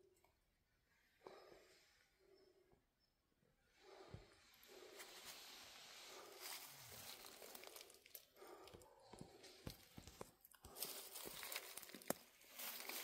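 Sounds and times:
footsteps crunching through dry leaves: 0:06.2 - 0:08.1, 0:10.7 - 0:13.0.

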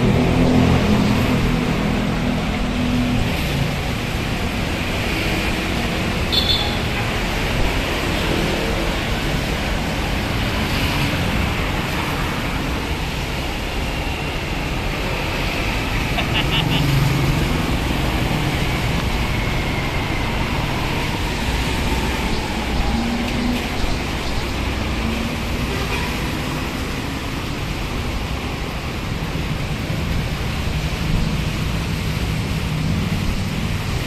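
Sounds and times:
highway traffic on wet road: 0:00.0 - 0:34.0
heavy vehicle passing: 0:07.2 - 0:28.4.

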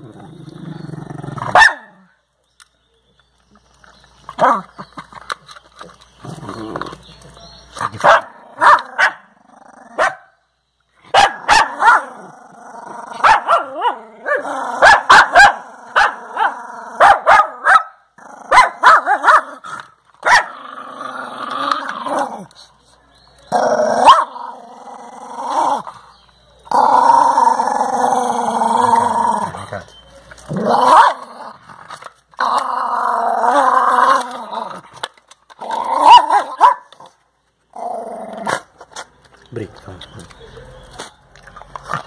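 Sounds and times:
dog growling: 0:00.0 - 0:01.6, 0:11.7 - 0:17.0, 0:20.5 - 0:22.6, 0:23.5 - 0:26.1, 0:26.7 - 0:29.9, 0:30.5 - 0:36.6
teeth clicking on ice and plastic: 0:38.6 - 0:42.0.

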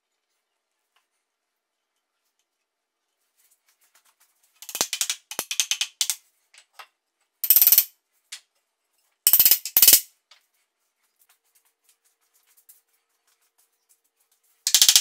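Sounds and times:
hammer tapping wooden dowels: 0:04.6 - 0:08.4, 0:14.7 - 0:15.0.

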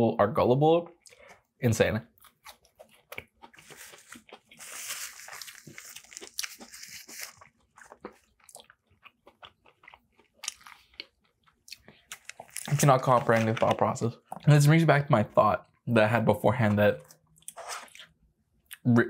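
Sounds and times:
chewing crispy fish: 0:02.1 - 0:14.6.

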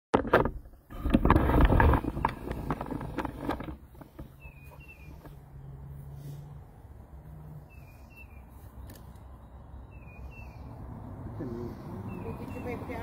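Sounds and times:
phone microphone handling rustle: 0:00.2 - 0:05.5
bird chirps: 0:04.2 - 0:05.9, 0:07.6 - 0:10.9, 0:11.8 - 0:13.0.

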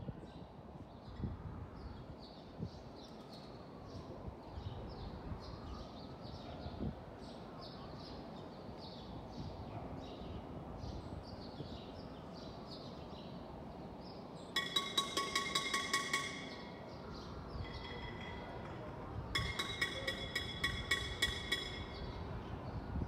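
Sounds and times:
low hum of traffic: 0:00.0 - 0:23.0
bird chirping: 0:14.1 - 0:22.8
metal object clanging: 0:14.6 - 0:16.9, 0:17.6 - 0:22.0.

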